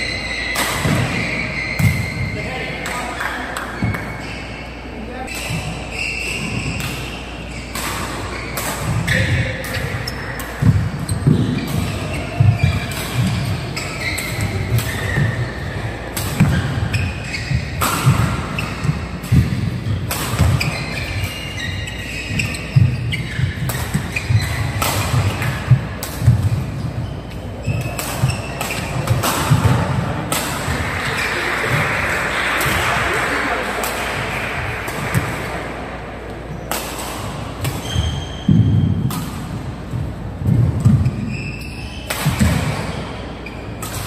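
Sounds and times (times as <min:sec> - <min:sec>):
shoe squeaks: 0:00.0 - 0:02.8, 0:03.7 - 0:31.4, 0:37.6 - 0:39.1, 0:40.9 - 0:44.0
racket hitting shuttlecock: 0:00.3 - 0:03.0, 0:05.3 - 0:44.0.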